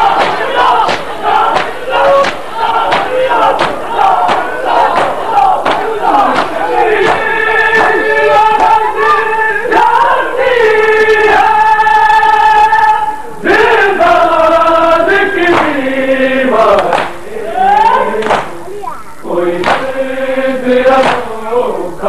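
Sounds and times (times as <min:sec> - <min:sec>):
men chanting a mourning lament: 0:00.0 - 0:18.6, 0:19.2 - 0:22.0.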